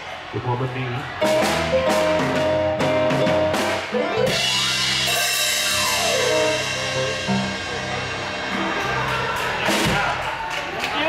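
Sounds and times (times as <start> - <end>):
live blues band: 1.1 - 10.9.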